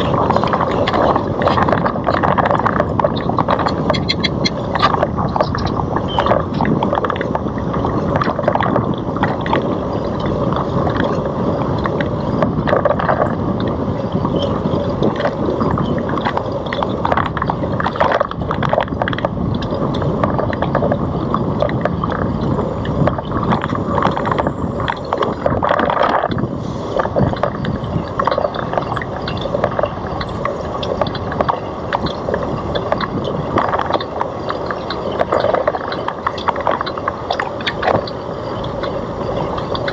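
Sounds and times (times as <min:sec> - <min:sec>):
bike rattling and knocking: 0:00.0 - 0:26.5
wind rushing over microphone: 0:00.0 - 0:39.9.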